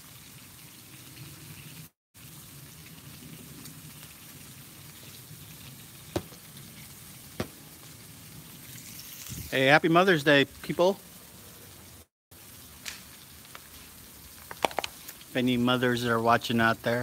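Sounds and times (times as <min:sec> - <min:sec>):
meat sizzling on a griddle: 0:00.0 - 0:06.9, 0:08.3 - 0:09.7, 0:10.8 - 0:15.4
sharp pops: 0:06.1 - 0:06.5, 0:07.4 - 0:07.7.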